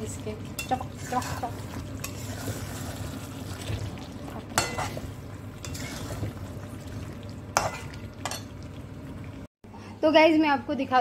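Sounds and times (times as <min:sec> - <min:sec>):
gravy sizzling: 0:00.0 - 0:09.5
metal spoon scraping a pan: 0:00.6 - 0:02.9, 0:04.6 - 0:05.0, 0:05.6 - 0:06.2, 0:07.6 - 0:08.5.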